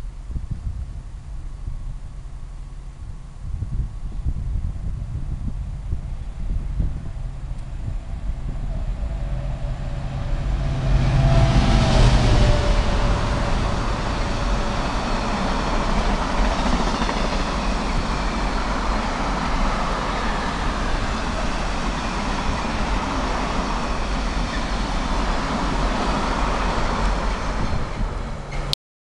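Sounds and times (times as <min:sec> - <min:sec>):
freight train rolling past: 0:05.8 - 0:28.7.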